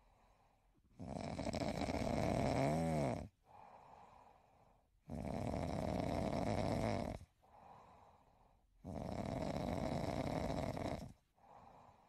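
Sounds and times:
quiet breathing: 0.0 - 1.0, 3.3 - 5.1, 7.0 - 12.0
man snoring: 1.0 - 3.4, 5.1 - 7.3, 8.8 - 11.9.

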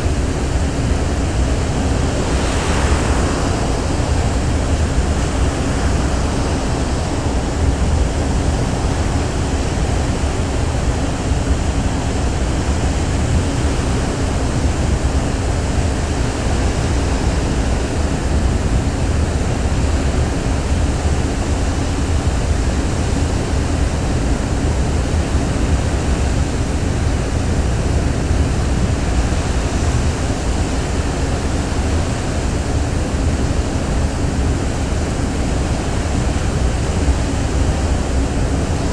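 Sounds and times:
faint steady hum: 0.0 - 38.9
wind and sea rushing: 0.0 - 38.9
deep rumble: 0.8 - 6.6.

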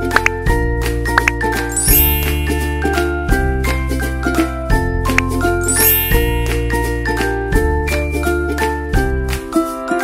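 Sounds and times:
chiming bell-like music: 1.6 - 4.8, 5.4 - 9.1.

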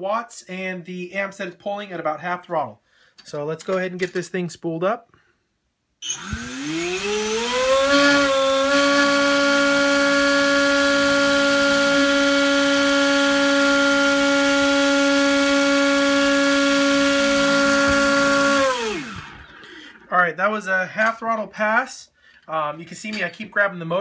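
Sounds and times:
drone motor whine: 6.0 - 19.7.

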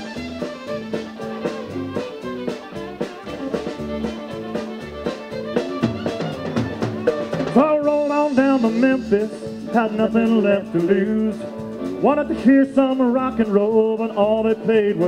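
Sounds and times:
bass: 0.0 - 15.0
drum kit: 0.0 - 15.0
fiddle melody: 0.0 - 15.0.

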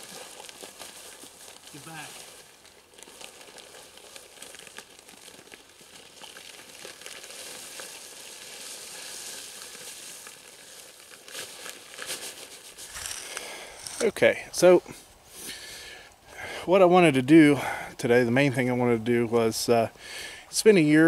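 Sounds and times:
bag crinkling: 0.0 - 14.2
dry material pouring hiss: 0.0 - 15.8.

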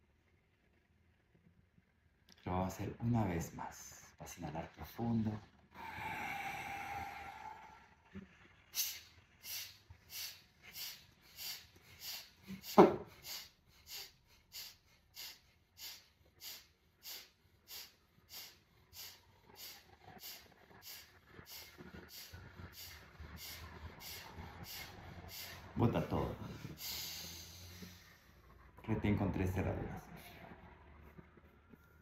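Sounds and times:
forceful nasal exhalations: 5.7 - 8.0, 8.7 - 25.7, 26.4 - 28.3.

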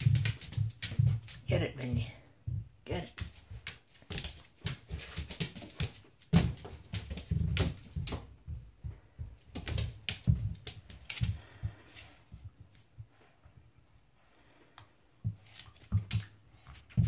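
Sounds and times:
dog claws clicking on vinyl floor: 0.0 - 1.5, 3.1 - 8.5, 9.4 - 11.9, 15.4 - 17.0.

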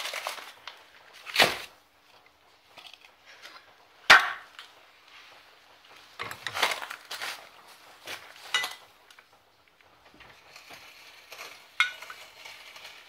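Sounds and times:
light metal clattering: 8.3 - 9.3.

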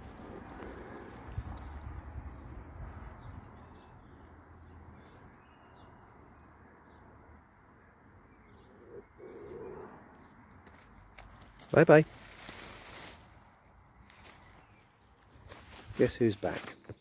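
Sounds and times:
pigeon-like coo: 0.0 - 1.8, 8.5 - 10.1
faint bird calls: 7.8 - 10.4.

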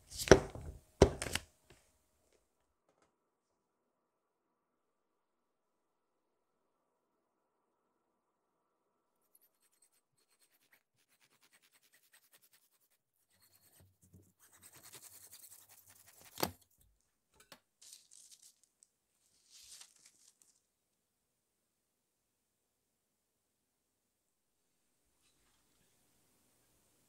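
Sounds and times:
knife sawing through sponge cake: 9.3 - 16.5.

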